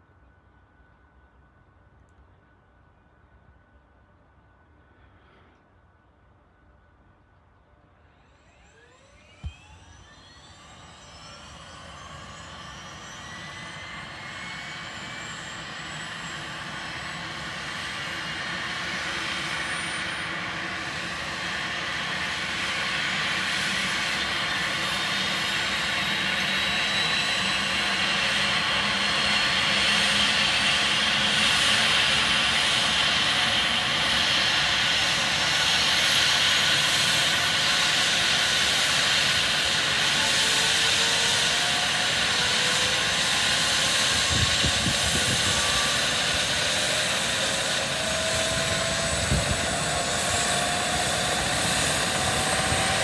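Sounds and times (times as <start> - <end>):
helicopter turbine whine: 0.0 - 53.0
helicopter rotor noise: 8.0 - 53.0.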